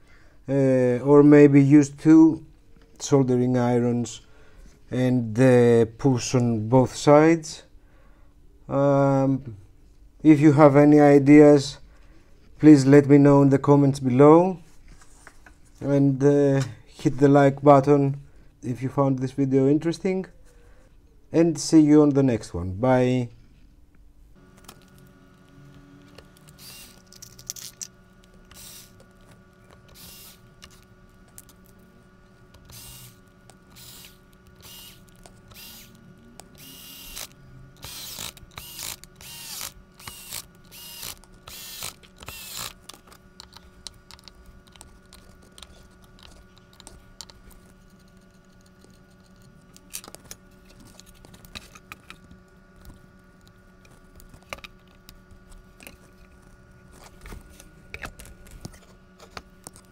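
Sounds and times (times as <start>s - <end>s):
steady low hum: 0.0s - 59.9s
screwdriver clicking and rattling: 32.6s - 52.2s.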